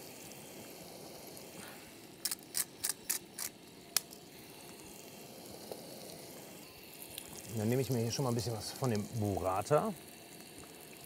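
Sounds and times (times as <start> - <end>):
pepper mill grinding: 2.1 - 5.0.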